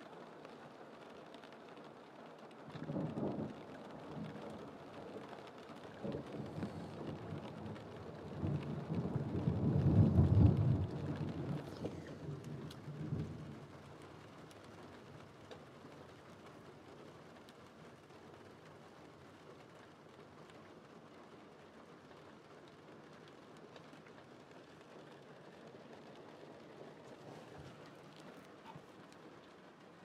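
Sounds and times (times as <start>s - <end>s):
light rain ticking on glass: 0.0s - 30.0s
rolling thunder: 5.9s - 13.7s.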